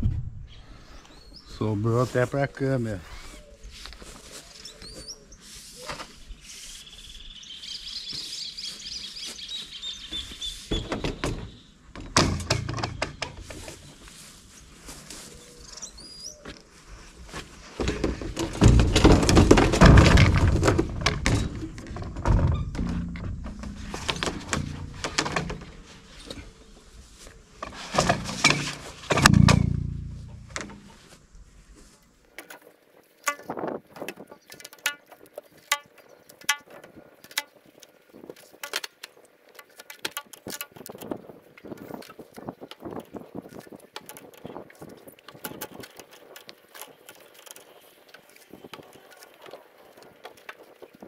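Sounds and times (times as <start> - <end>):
birds chirping: 0.4 - 2.0, 2.7 - 11.8, 12.8 - 16.6
pipes knocking and scraping on metal: 10.7 - 14.0, 17.7 - 26.4, 27.6 - 31.1, 33.2 - 37.5.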